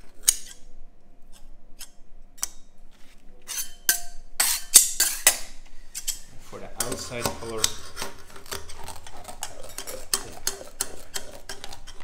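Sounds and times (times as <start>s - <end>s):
metal tools scraping a surface: 3.5s - 5.4s, 6.0s - 12.0s.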